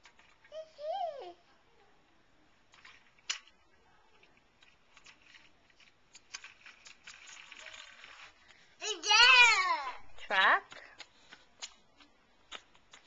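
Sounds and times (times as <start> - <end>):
toy truck wheels scraping concrete: 4.6 - 8.5
small sharp clicks: 10.7 - 13.0.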